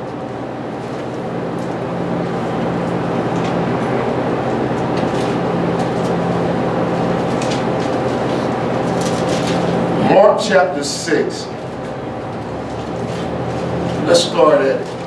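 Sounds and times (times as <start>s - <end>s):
room noise hum: 0.0s - 15.0s
book pages rustling: 7.3s - 9.8s.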